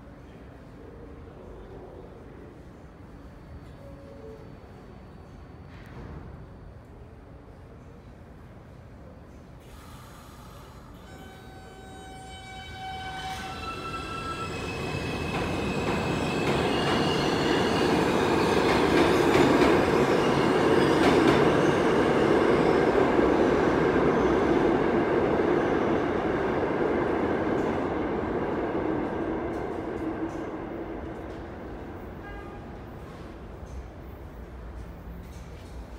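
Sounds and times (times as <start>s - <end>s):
subway train passing: 0.0s - 35.9s.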